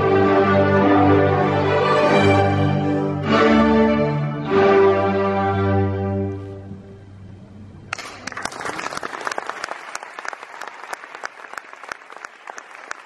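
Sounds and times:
audience applause: 7.9s - 13.0s.

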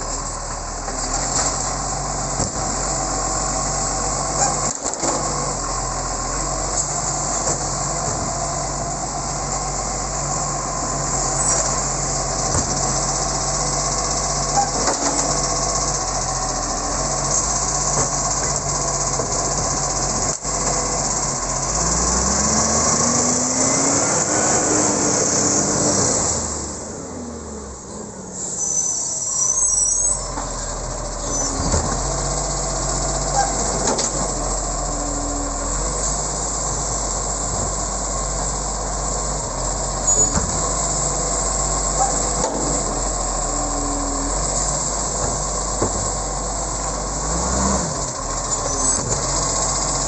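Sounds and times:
garbage truck diesel engine: 0.0s - 50.0s
hydraulic arm clanks and knocks: 12.4s - 13.0s, 45.2s - 46.2s.

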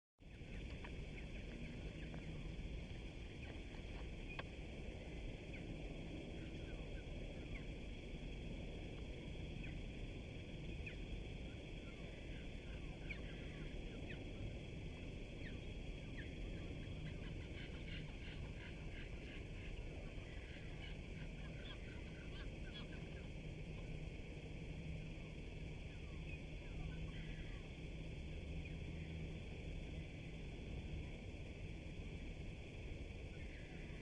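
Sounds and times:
small birds chirping: 0.2s - 8.0s, 9.0s - 24.0s, 25.2s - 27.8s
low outdoor rumble: 0.2s - 34.0s
steady high hiss: 0.2s - 34.0s.

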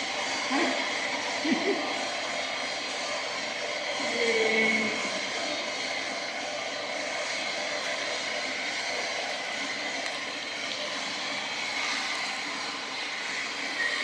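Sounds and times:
steady rushing noise: 0.0s - 14.0s.

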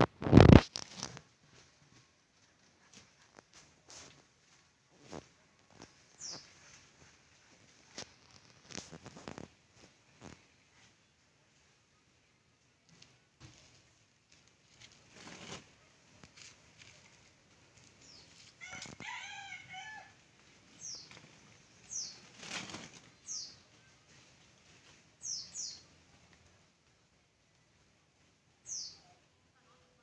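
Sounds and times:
faint bird chirps: 6.1s - 6.8s, 23.2s - 24.2s, 28.6s - 29.8s
rooster crowing: 18.6s - 20.2s
brief rustling: 20.8s - 23.4s.

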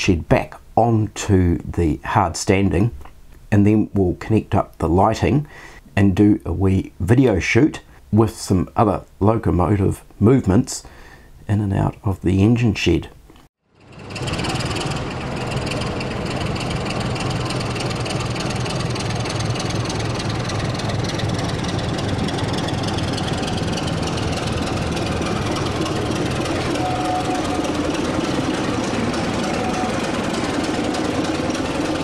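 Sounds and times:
diesel engine running: 13.8s - 32.0s.

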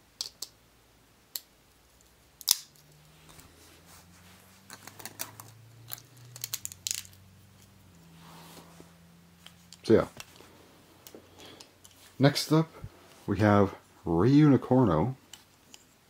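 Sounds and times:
plastic parts clicking and snapping: 1.3s - 2.9s, 4.7s - 7.7s.

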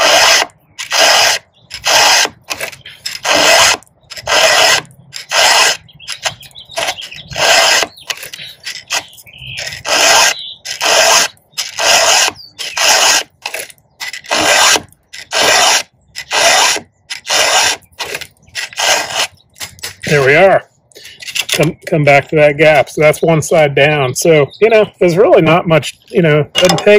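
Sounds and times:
file rasping on saw chain: 0.0s - 20.1s.

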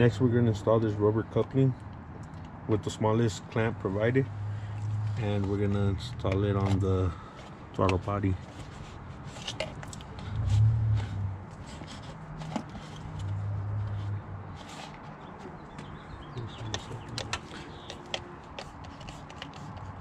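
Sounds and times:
handling clicks and scuffs: 4.7s - 16.0s, 16.6s - 20.0s.

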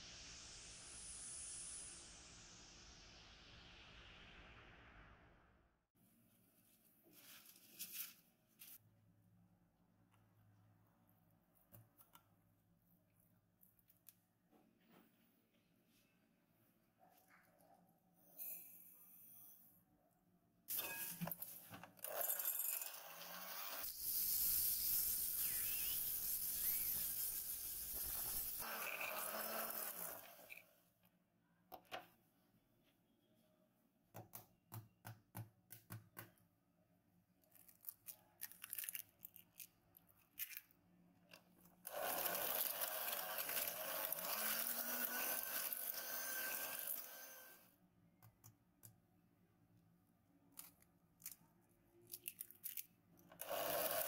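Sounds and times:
electric hand mixer beating: 41.9s - 47.6s.

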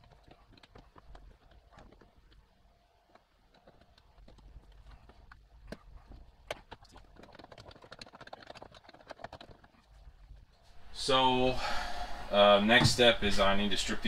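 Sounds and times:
hands clicking on plastic panel: 3.1s - 9.9s.

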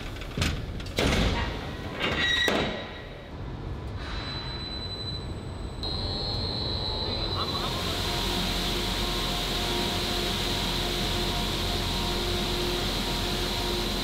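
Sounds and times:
high machine whine: 5.1s - 14.0s
machine steady noise: 5.5s - 14.0s.

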